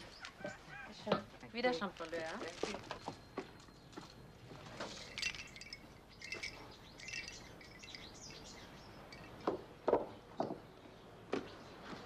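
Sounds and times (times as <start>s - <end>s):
small birds chirping: 2.6s - 12.0s.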